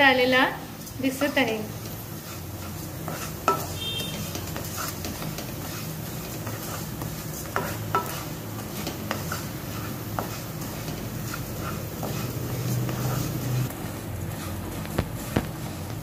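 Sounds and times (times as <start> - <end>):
lentils sizzling in a pan: 0.0 - 16.0
spatula knocking on a pan: 3.4 - 5.5, 7.5 - 8.2.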